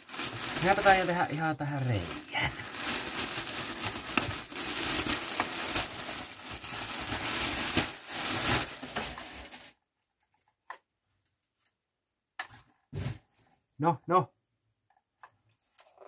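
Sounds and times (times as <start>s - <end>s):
plastic wrapping crinkling and ripping: 0.0s - 9.8s.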